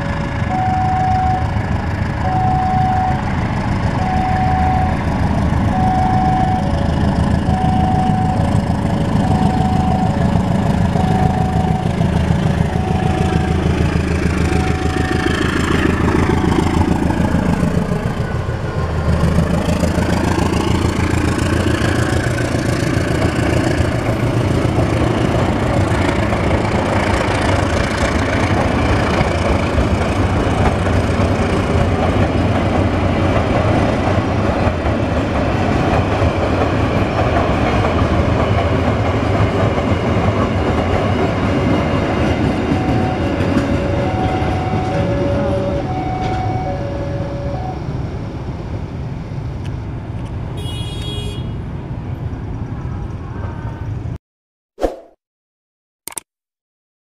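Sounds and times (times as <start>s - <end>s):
diesel locomotive passing: 0.0s - 54.2s
train wheels clattering on rails: 6.8s - 45.4s.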